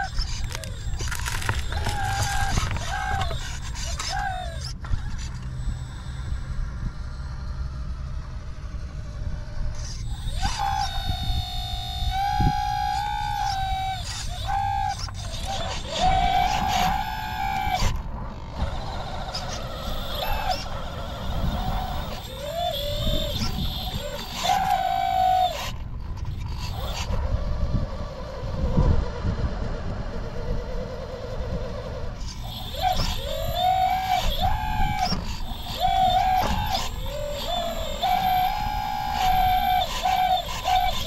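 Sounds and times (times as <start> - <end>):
electric motors whining: 0.0 - 41.0
low steady rumble: 0.0 - 41.0.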